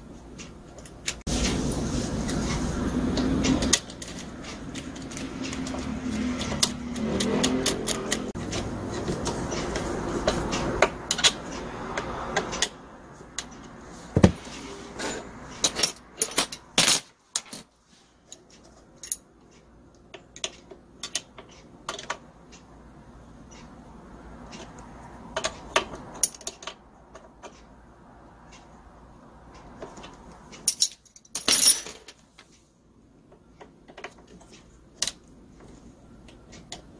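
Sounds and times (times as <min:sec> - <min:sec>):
metallic clicks of hand tools: 0:03.4 - 0:08.7.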